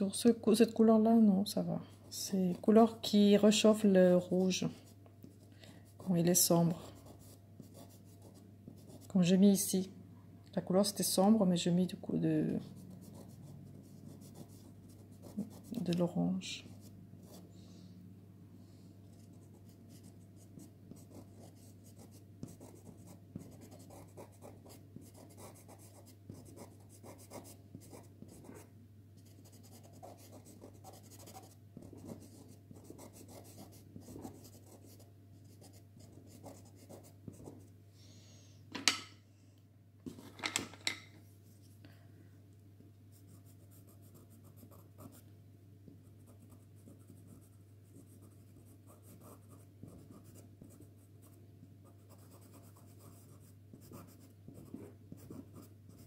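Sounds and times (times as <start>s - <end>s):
pencil scratching on card: 12.8s - 16.0s, 19.2s - 37.6s, 46.2s - 56.0s.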